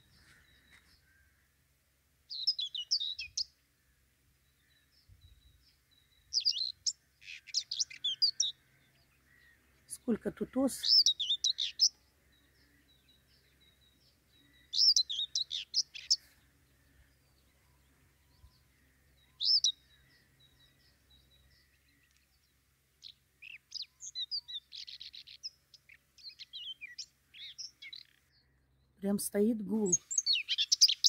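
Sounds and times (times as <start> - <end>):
songbird chirping: 0.0 - 31.0.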